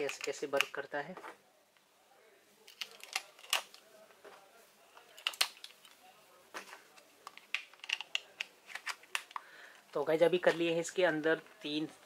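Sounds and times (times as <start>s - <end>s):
plastic clicks and knocks: 6.6s - 9.4s.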